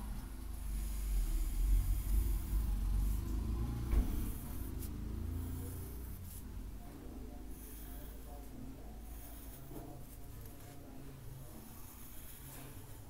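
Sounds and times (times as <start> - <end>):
steady low rumble: 0.0 - 7.2
pencil drawing on paper: 0.5 - 13.0.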